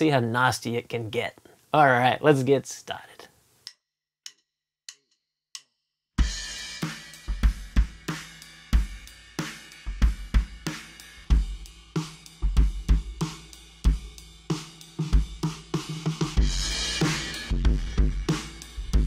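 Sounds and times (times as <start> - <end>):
drum kit groove: 6.2 - 19.0.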